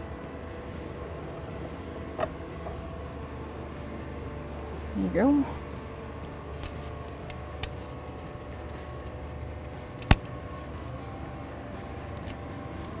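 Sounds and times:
steady low hum: 0.0s - 13.0s
sharp click: 10.0s - 10.3s.

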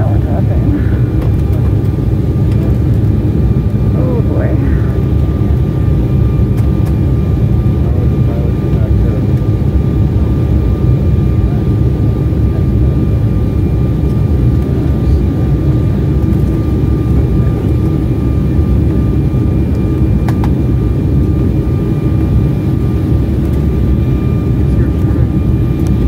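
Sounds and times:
thin steady whine: 0.0s - 11.7s
jet cabin rumble: 0.0s - 26.0s.

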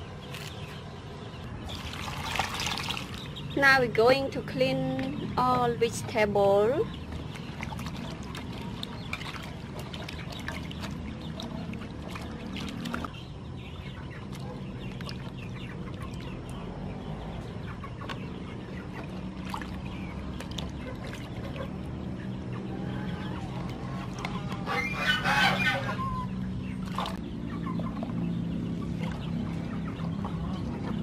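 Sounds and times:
chickens clucking: 12.9s - 19.4s, 20.0s - 31.0s.

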